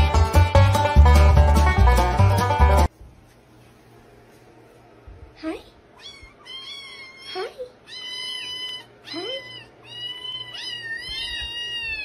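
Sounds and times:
kittens meowing: 0:06.0 - 0:12.0.

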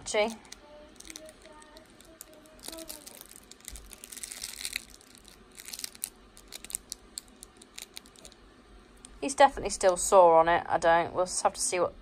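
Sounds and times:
plush toy crinkling: 0:00.1 - 0:08.4.

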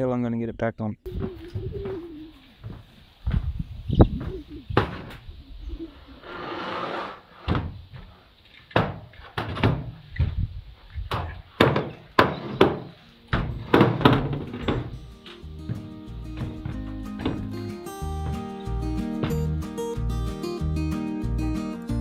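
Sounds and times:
ladder knocking on metal roof: 0:08.7 - 0:10.0, 0:11.1 - 0:18.5.

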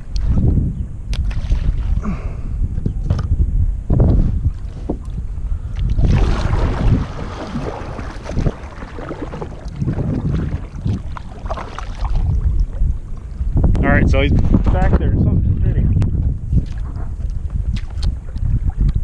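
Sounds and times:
wind buffeting microphone: 0:00.0 - 0:19.0
water sloshing and splashing: 0:01.2 - 0:02.1, 0:04.5 - 0:13.6, 0:16.5 - 0:19.0.

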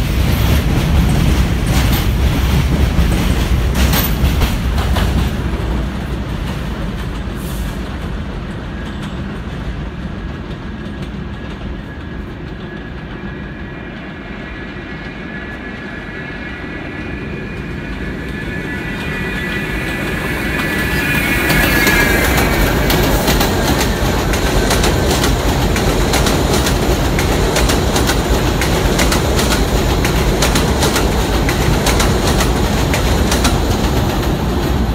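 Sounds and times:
subway train rumble and wheel clatter: 0:00.0 - 0:34.9
steel wheel squeal: 0:14.8 - 0:25.1.

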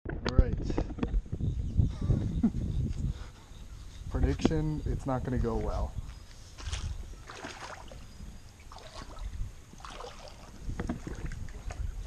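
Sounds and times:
wind rumble on microphone: 0:00.0 - 0:12.0
shallow water splashing: 0:06.6 - 0:12.0.

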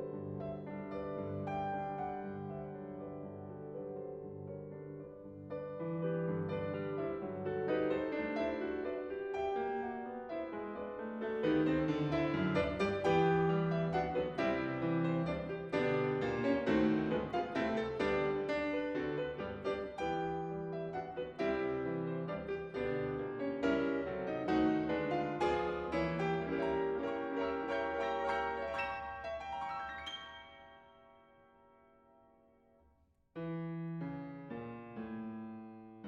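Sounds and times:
solo piano music: 0:00.0 - 0:32.7, 0:33.4 - 0:36.0.

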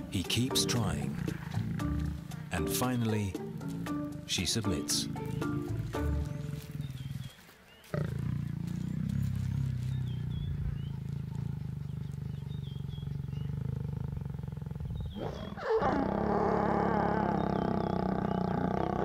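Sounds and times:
lions growling and snarling: 0:00.8 - 0:02.5, 0:03.4 - 0:19.0
faint bird chirps: 0:06.2 - 0:15.6.

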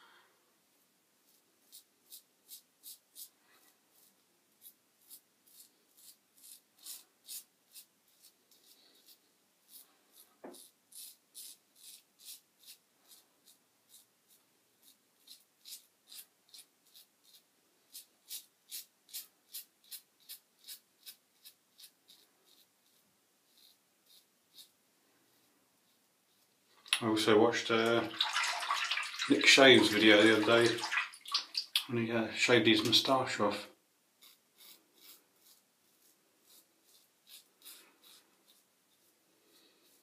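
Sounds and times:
razor scraping through stubble: 0:03.9 - 0:26.5, 0:34.2 - 0:40.0.

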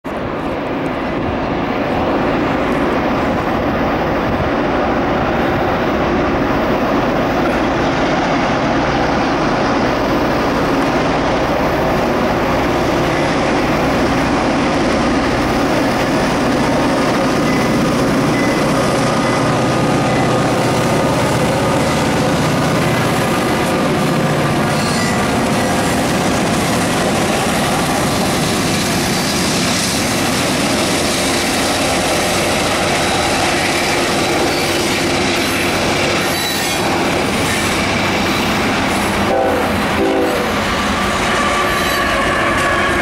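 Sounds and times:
diesel locomotives roaring: 0:00.0 - 0:43.0.

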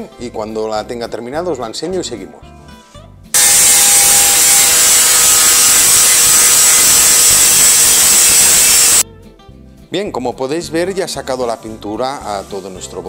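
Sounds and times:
angle grinder motor whine: 0:03.4 - 0:09.0.

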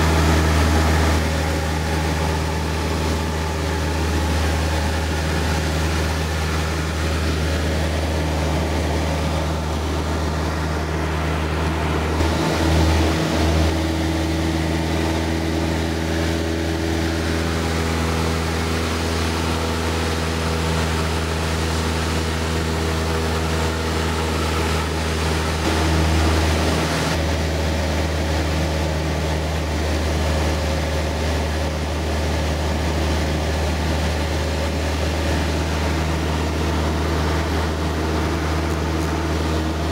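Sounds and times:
light aircraft engine droning: 0:00.0 - 0:39.9.

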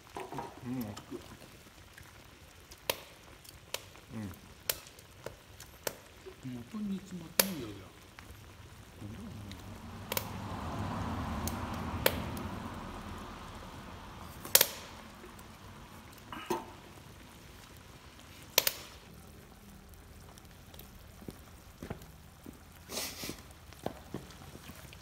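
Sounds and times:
stew bubbling and sizzling in a pan: 0:00.0 - 0:25.0
sharp clicks: 0:07.4 - 0:07.6, 0:10.1 - 0:10.3, 0:14.4 - 0:14.9, 0:18.6 - 0:19.0.

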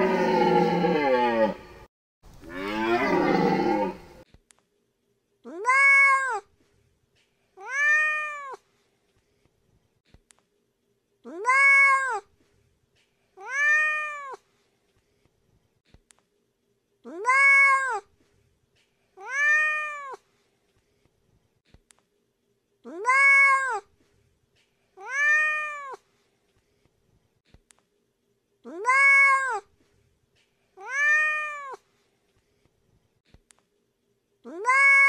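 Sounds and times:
cat meowing: 0:07.6 - 0:08.6, 0:13.4 - 0:14.4, 0:19.2 - 0:20.2, 0:25.0 - 0:26.0, 0:28.7 - 0:29.6, 0:30.8 - 0:31.8, 0:34.5 - 0:35.0.

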